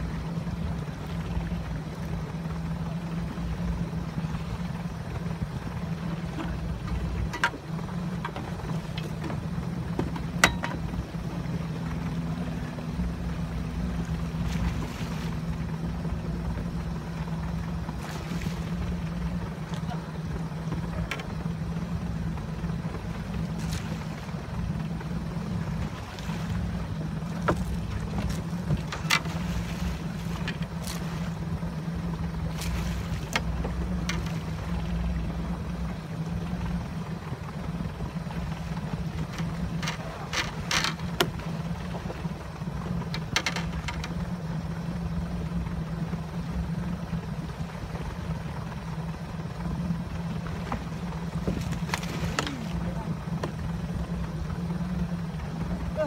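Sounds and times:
outboard motor humming: 0.0 - 56.0.

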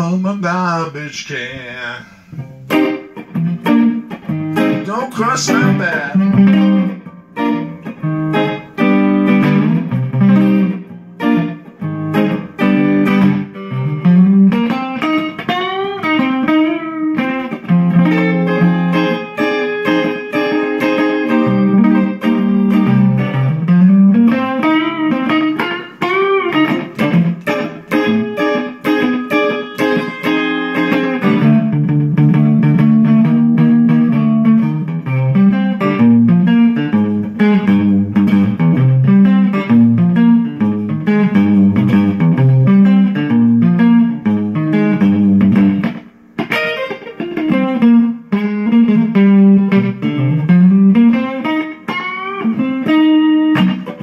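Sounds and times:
electric guitar lead with bends: 0.0 - 54.0.

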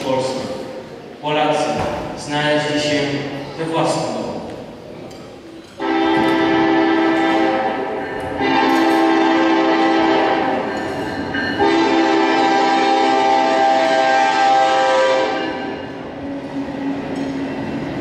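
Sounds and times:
train horn blasts: 5.8 - 10.8, 11.6 - 15.9.

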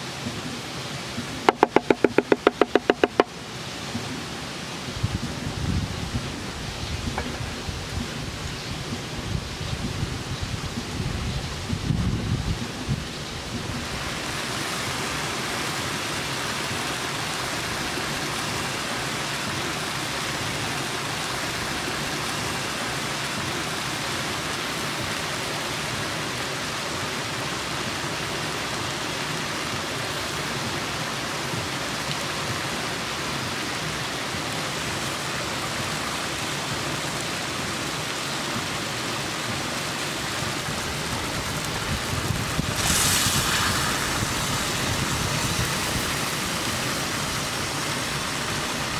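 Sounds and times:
higher hiss: 27.5 - 48.9
stew bubbling in a pot: 42.7 - 46.4.

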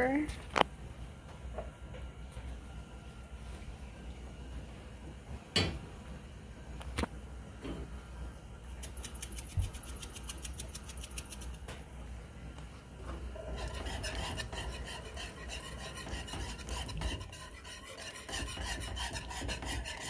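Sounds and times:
glass pepper shaker ticking: 8.8 - 11.6
whisk scraping metal skillet: 13.3 - 20.0.

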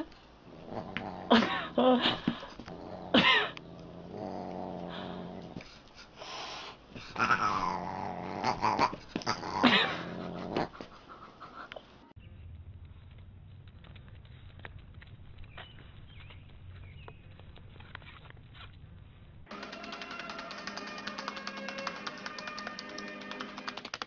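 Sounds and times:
dog growling: 0.4 - 5.6, 7.0 - 11.0.

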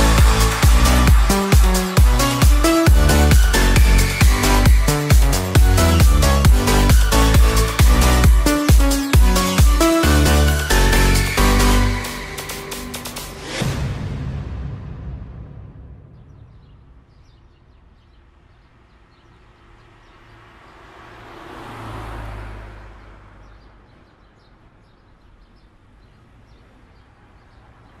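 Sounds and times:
vehicle passing: 17.8 - 24.3.

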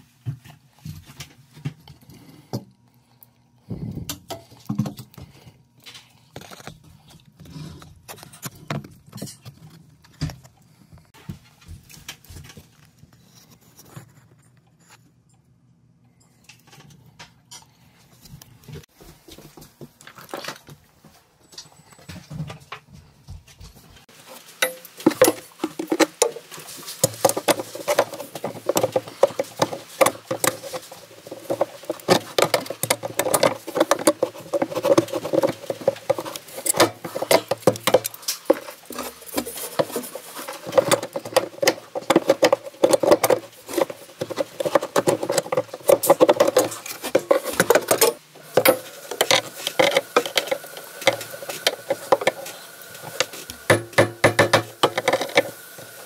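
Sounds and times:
tools scraping and clicking on plastic: 4.0 - 11.2, 24.6 - 56.0.

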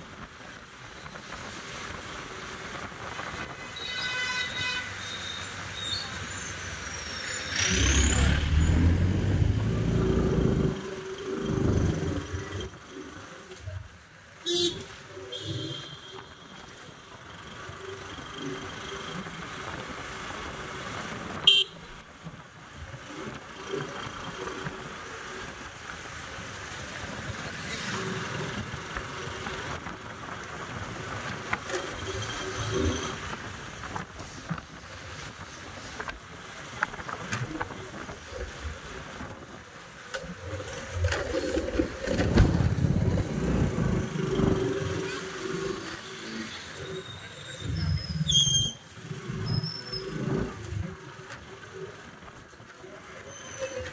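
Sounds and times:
vehicle engines running: 6.1 - 13.7.

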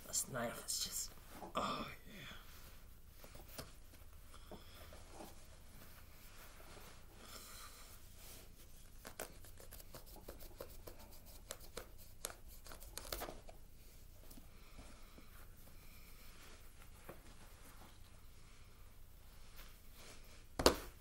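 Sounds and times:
cloth rustling: 2.4 - 11.3, 12.6 - 21.0.

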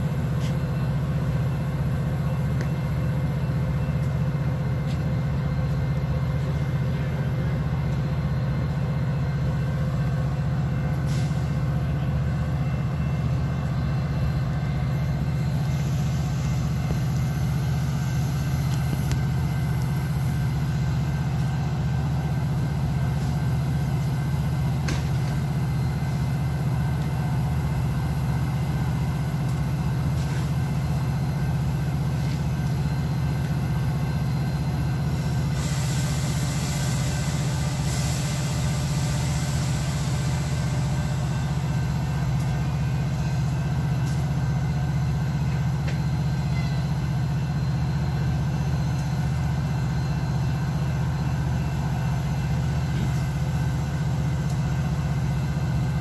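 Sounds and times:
diesel locomotive idling: 0.0 - 56.0
hiss: 35.2 - 41.8.

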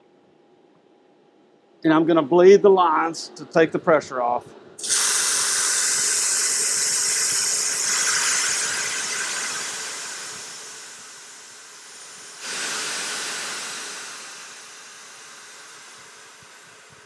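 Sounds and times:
high-pressure air hissing: 4.8 - 17.0.

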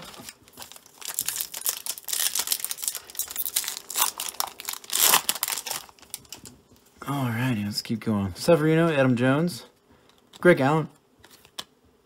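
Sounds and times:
wrapper crinkling and tearing: 0.0 - 6.6.

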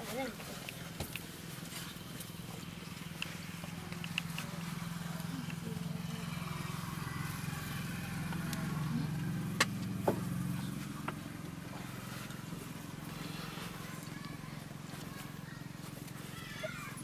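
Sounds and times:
low mechanical hum: 0.0 - 17.0
sharp clicks: 3.1 - 4.6.

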